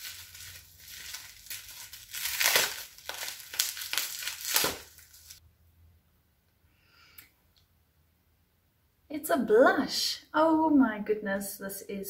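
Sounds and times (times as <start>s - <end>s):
packaging rustling and crackling: 0.0s - 5.4s.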